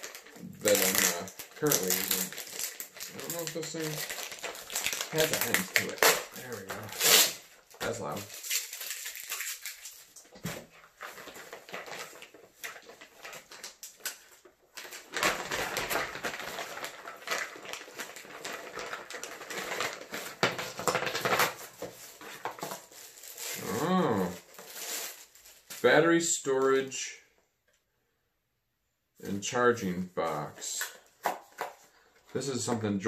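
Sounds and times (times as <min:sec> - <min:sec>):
plastic packaging crinkling: 0:00.0 - 0:26.0.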